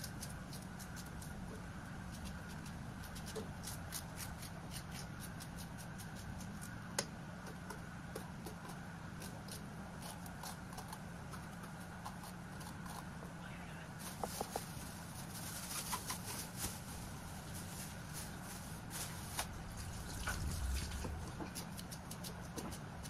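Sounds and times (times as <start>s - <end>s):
knife slicing an onion: 0.0s - 13.3s, 21.1s - 23.0s.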